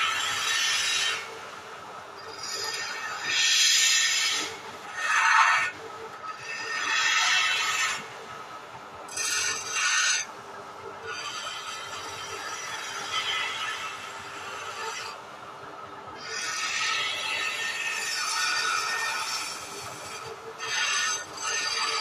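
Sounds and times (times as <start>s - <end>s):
lathe humming: 2.2s - 8.1s, 16.2s - 22.0s
chisel scraping wood: 16.4s - 22.0s.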